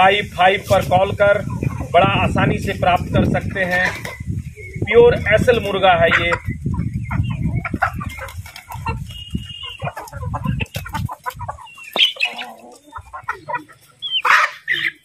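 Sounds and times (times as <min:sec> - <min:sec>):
chickens clucking: 0:00.0 - 0:15.0
shrill chicken squawk: 0:13.2 - 0:15.0.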